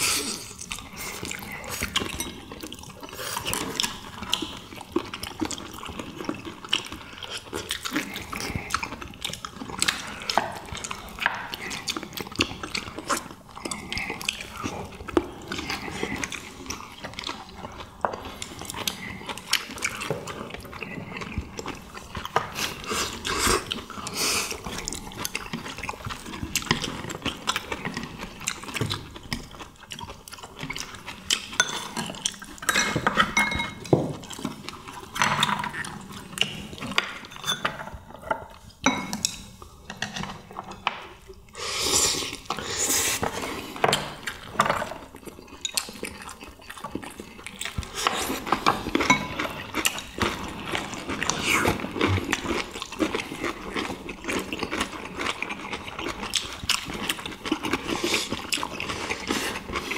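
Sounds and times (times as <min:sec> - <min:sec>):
chewing: 0:00.0 - 0:59.9
utensils clinking on ceramic bowls: 0:31.5 - 0:34.0, 0:37.0 - 0:41.0, 0:48.0 - 0:50.4.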